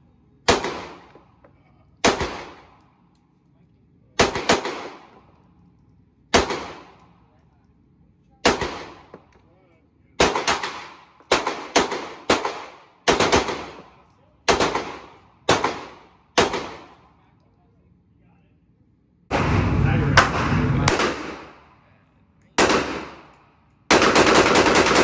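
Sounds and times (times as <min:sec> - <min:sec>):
pistol shots echoing indoors: 0:22.6 - 0:25.0.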